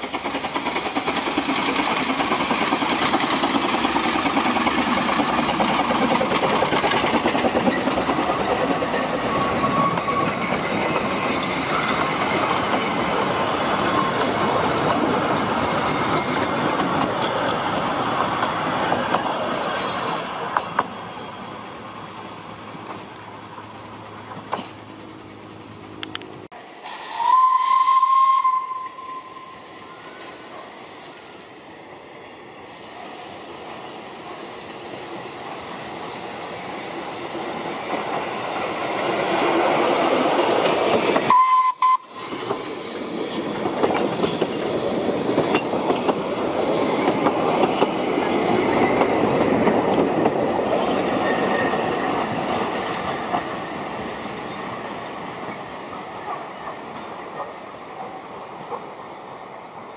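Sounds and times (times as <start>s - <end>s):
train running past: 0.0s - 59.9s
steam locomotive whistle: 9.2s - 10.3s, 26.8s - 30.4s, 41.3s - 42.4s.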